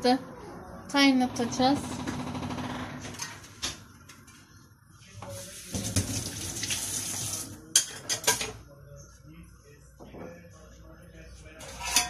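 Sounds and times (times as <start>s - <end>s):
water running from a tap: 5.5s - 7.6s.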